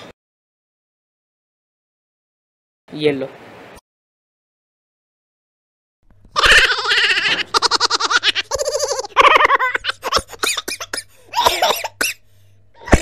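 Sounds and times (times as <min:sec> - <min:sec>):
people laughing: 0:06.4 - 0:10.7.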